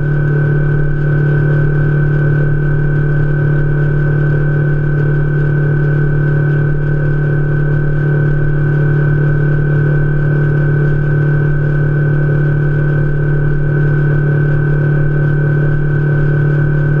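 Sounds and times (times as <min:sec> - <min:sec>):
outboard motor droning: 0:00.0 - 0:17.0.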